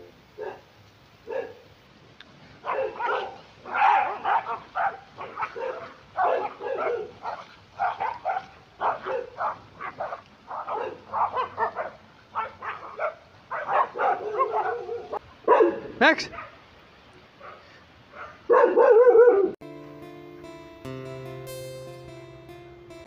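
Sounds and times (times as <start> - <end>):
pack of dogs barking: 0.0 - 1.7, 2.4 - 16.6, 17.4 - 19.6.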